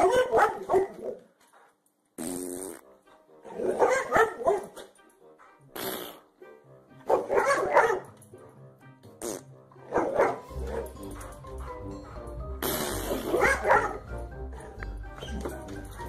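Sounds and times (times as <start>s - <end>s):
dog barking: 0.0s - 1.2s, 3.5s - 4.9s, 7.0s - 8.5s, 9.8s - 12.3s, 13.2s - 14.8s.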